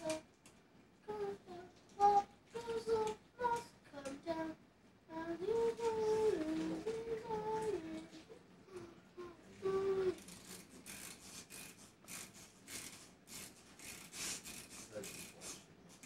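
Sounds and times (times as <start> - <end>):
child humming a tune: 1.1 - 4.5, 5.1 - 10.2.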